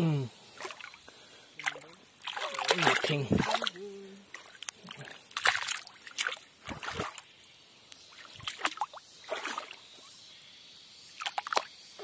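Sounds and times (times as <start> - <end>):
water trickling: 0.6 - 7.6
hand splashing in shallow water: 1.6 - 7.2.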